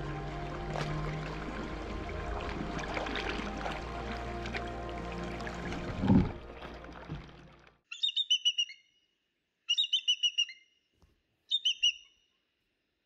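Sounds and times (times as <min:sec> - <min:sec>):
closing music: 0:00.0 - 0:07.7
bird chirping calls: 0:07.9 - 0:08.9, 0:09.7 - 0:10.7, 0:11.5 - 0:12.2.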